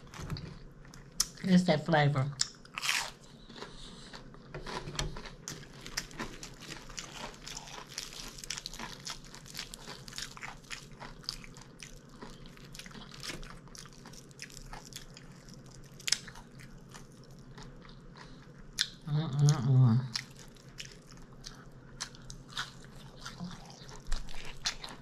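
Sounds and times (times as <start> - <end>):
person chewing food: 2.4 - 19.0, 20.1 - 25.0
food crunching: 2.4 - 25.0.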